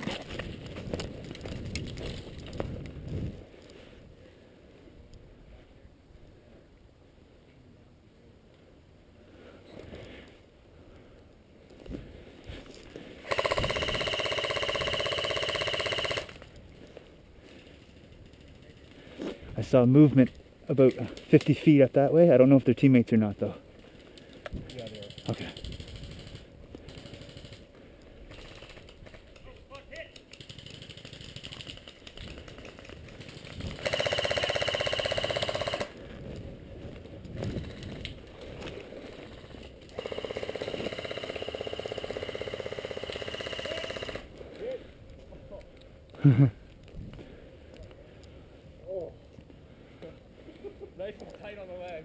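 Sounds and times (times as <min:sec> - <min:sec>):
airsoft gun full-auto burst: 0:13.2 - 0:16.4, 0:30.4 - 0:31.8, 0:33.3 - 0:36.0, 0:39.4 - 0:44.3.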